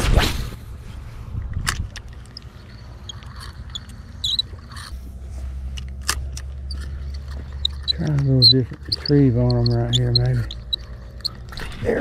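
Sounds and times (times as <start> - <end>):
spinning reel whine with ticks: 6.6 - 11.7.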